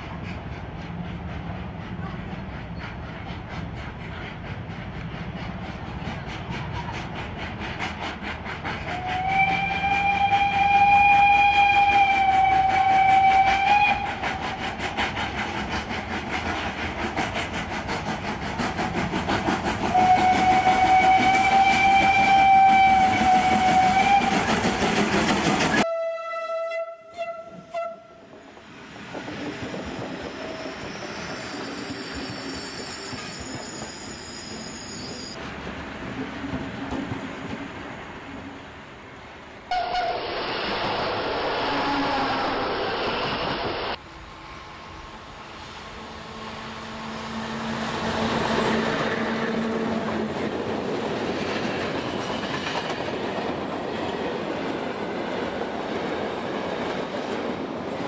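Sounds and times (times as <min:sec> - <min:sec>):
steam locomotive exhaust beats: 0:00.0 - 0:34.2
passing train running noise: 0:00.0 - 0:58.0
steam whistle: 0:08.9 - 0:14.2, 0:19.9 - 0:24.5, 0:25.8 - 0:28.2, 0:39.7 - 0:40.3
train horn blast: 0:19.9 - 0:24.3, 0:25.8 - 0:28.2, 0:39.7 - 0:40.2, 0:46.6 - 0:50.0.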